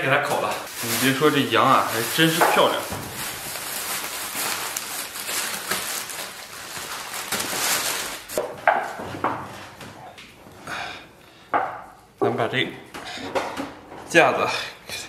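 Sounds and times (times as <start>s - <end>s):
plastic bag rustling: 0.0s - 8.5s.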